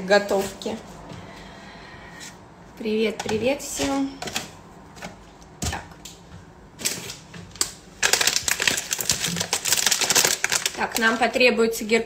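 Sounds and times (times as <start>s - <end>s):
plastic bag crinkling: 6.8s - 11.8s.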